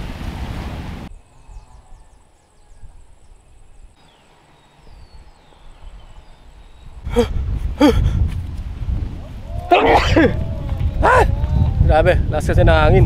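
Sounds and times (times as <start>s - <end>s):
high insect whine: 1.1s - 5.8s
faint bird chirps: 1.1s - 7.1s.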